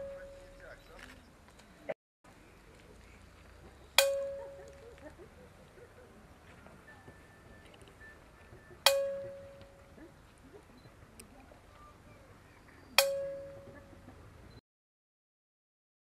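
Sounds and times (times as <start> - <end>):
metal bell strikes: 0.0 - 0.7, 4.0 - 4.8, 8.8 - 9.9, 13.0 - 13.8.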